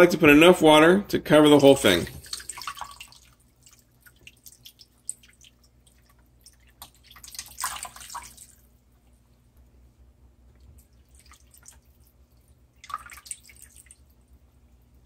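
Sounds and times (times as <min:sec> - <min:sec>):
water pouring and splashing: 0:01.6 - 0:08.7, 0:10.8 - 0:14.2.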